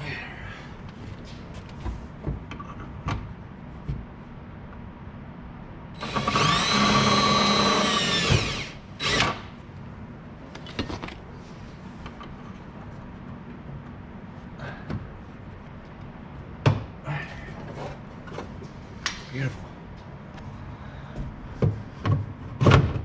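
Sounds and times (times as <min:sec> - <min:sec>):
power drill boring plastic: 0:06.0 - 0:09.4.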